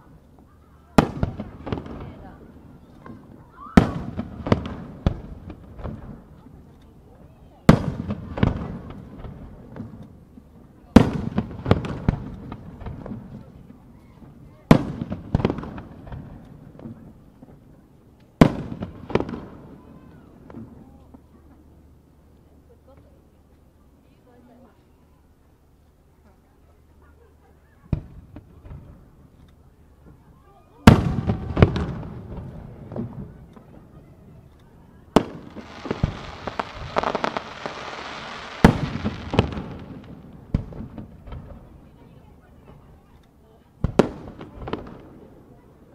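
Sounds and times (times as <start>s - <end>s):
small firework cracks: 0.0s - 21.3s, 27.9s - 45.9s
fireworks bang: 30.8s - 33.8s, 35.2s - 41.7s.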